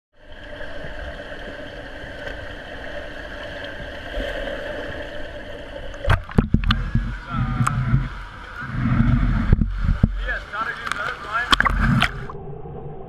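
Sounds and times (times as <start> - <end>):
underwater mechanical hum: 0.2 - 13.0
muffled low rumble: 6.0 - 13.0.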